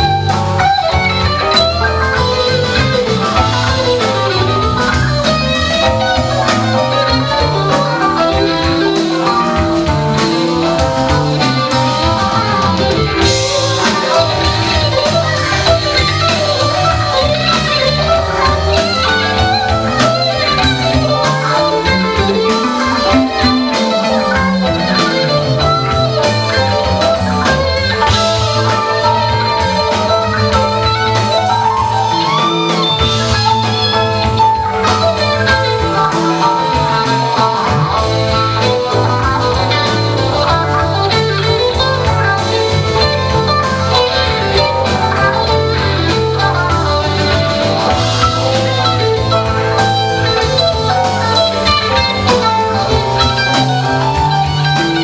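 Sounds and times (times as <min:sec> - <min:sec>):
rock band playing: 0:00.0 - 0:55.0.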